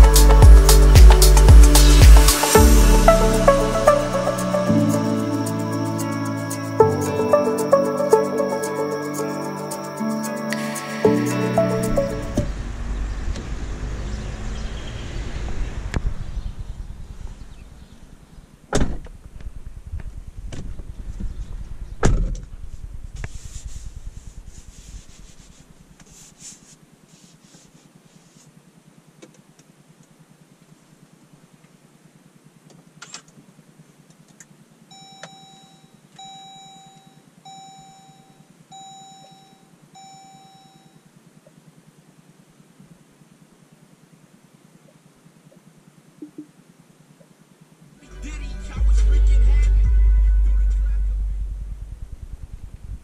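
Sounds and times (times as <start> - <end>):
low cabin hum: 11.2 - 26.0, 48.0 - 53.0
car door shutting thud: 18.7 - 19.2, 22.0 - 22.5
dashboard warning chime: 34.9 - 41.1.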